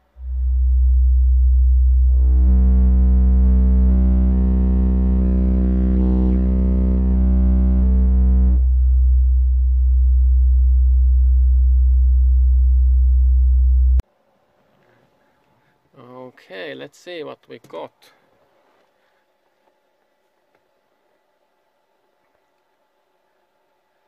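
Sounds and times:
buzzing overtones: 0:00.0 - 0:14.0
subwoofer playing low test tone: 0:00.0 - 0:14.0.

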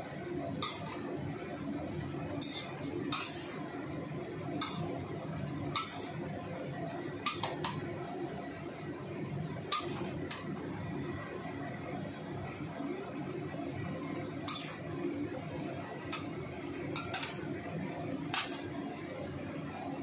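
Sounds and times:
metal spatula scraping a wok: 0:00.5 - 0:01.2, 0:02.2 - 0:03.7, 0:04.5 - 0:05.1, 0:05.7 - 0:06.3, 0:07.2 - 0:07.8, 0:09.7 - 0:10.5, 0:14.4 - 0:14.9, 0:16.1 - 0:17.5, 0:18.3 - 0:18.8.

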